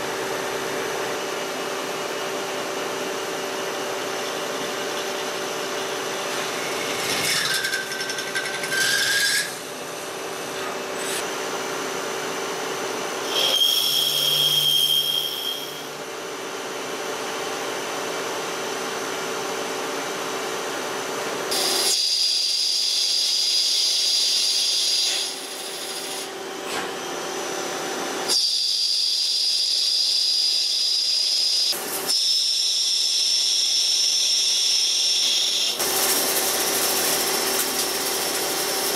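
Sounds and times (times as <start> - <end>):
cutting tool whining in metal: 5.8 - 11.2, 13.2 - 16.0, 28.2 - 38.9.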